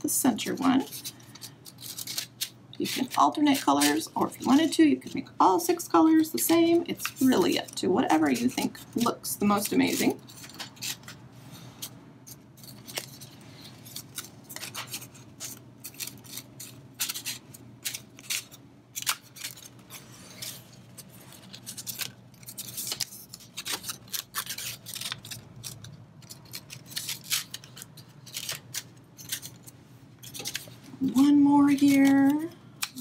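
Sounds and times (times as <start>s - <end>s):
paper rustling and scraping: 6.1s - 32.4s.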